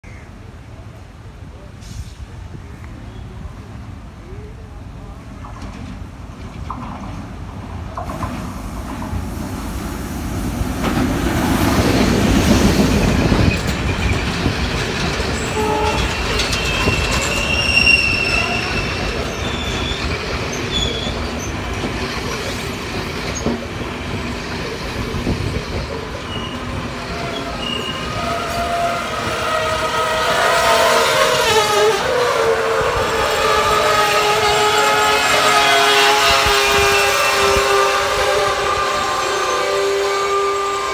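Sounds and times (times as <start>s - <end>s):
diesel locomotive engine rumble: 0.3s - 40.9s
train wheels clacking on rails: 10.6s - 31.4s
high wheel squeals: 15.3s - 21.6s, 25.5s - 40.9s.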